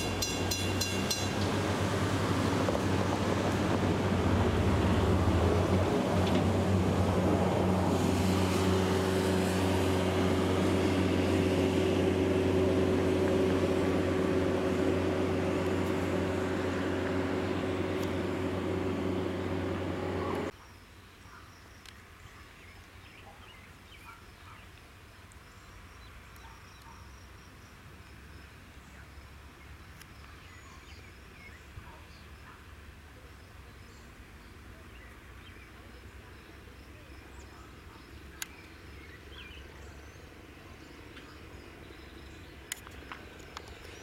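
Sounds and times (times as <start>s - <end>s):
mechanical drone with low hum: 9.6s - 20.5s.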